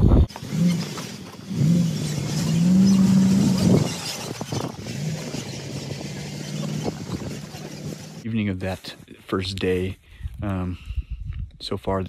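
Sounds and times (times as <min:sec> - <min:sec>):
suv engine running: 0:00.1 - 0:08.2.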